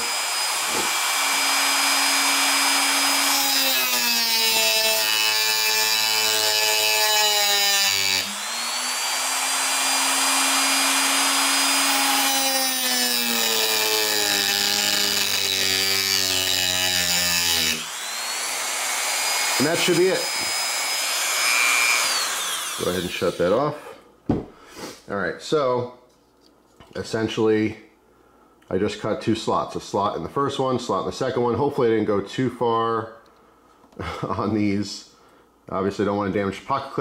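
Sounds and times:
rotary tool grinding metal: 0.0s - 23.5s.

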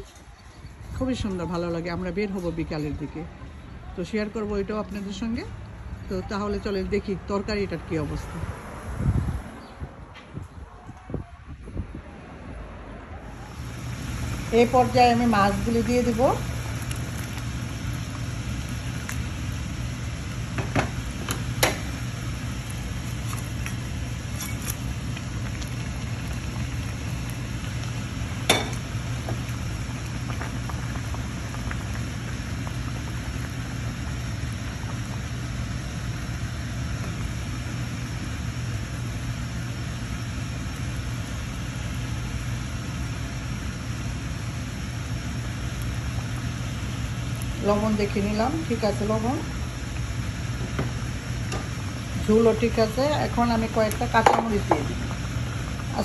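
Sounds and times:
curry bubbling in a pan: 15.3s - 48.4s, 49.4s - 56.0s.

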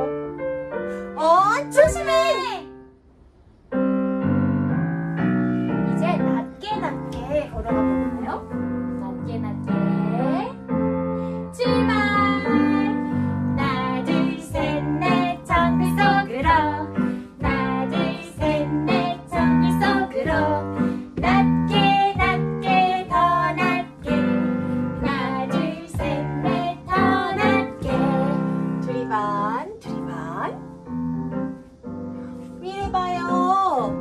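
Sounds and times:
women singing children's song: 1.2s - 2.6s, 11.5s - 30.6s, 32.6s - 34.0s.

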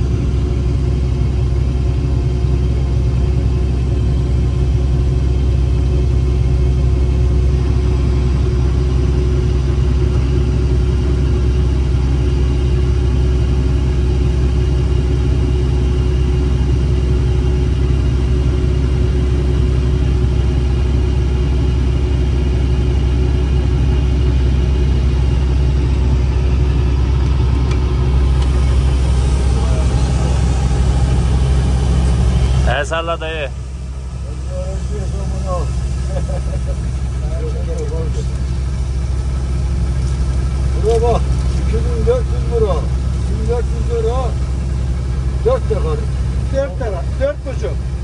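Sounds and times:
diesel engine rumbling: 0.0s - 48.0s.

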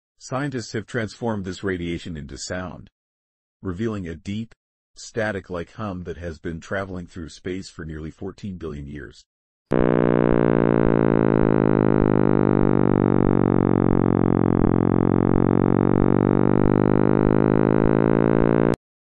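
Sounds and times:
synthesized hum: 9.7s - 18.8s.

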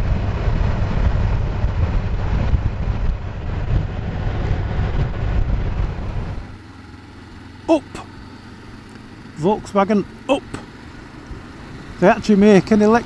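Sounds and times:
wind rushing over microphone: 0.0s - 6.6s
motorcycle engine and road rumble: 0.0s - 13.0s.

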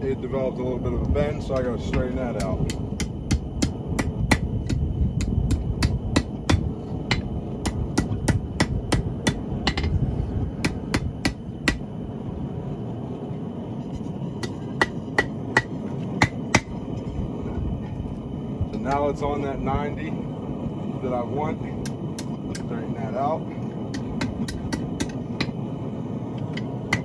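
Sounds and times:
hammer striking steel rod: 1.5s - 10.0s, 10.6s - 11.8s, 14.4s - 16.8s, 23.9s - 25.5s, 26.5s - 27.0s.

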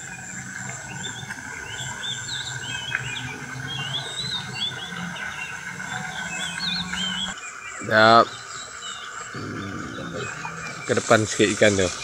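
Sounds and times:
birds chirping: 0.0s - 12.0s
steady high drone: 9.4s - 12.0s.

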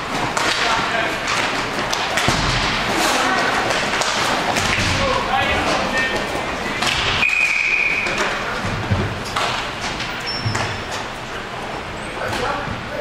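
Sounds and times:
referee's whistle: 7.2s - 8.2s.

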